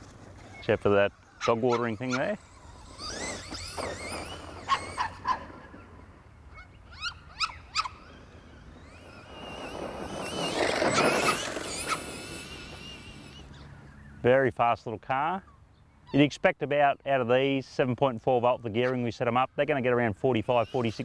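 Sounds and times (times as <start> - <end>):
tyres in grass: 0.0 - 14.1
rc truck motor whine: 0.0 - 14.2, 19.6 - 21.0.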